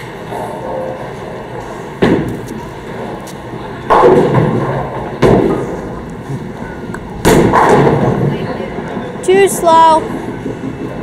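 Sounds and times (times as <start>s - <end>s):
bowling balls crashing into pins: 3.9s - 5.8s, 7.2s - 9.1s.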